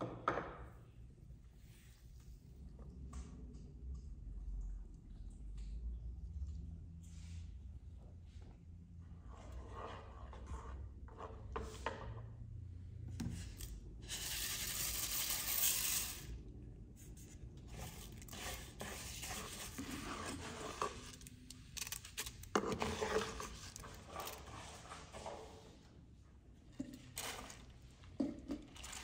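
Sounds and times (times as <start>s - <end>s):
wooden spatula scraping a pan: 9.2s - 12.3s, 17.6s - 21.3s, 22.5s - 25.8s.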